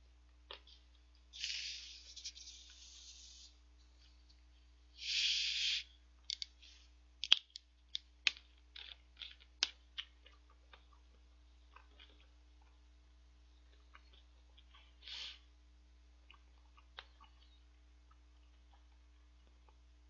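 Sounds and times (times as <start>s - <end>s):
carbonation hissing from bottle: 1.4s - 3.5s, 5.0s - 5.9s.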